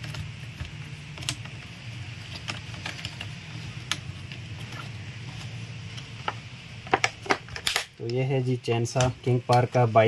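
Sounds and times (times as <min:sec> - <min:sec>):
steady low hum: 0:00.0 - 0:10.0
plastic parts clicking and knocking: 0:06.2 - 0:08.2.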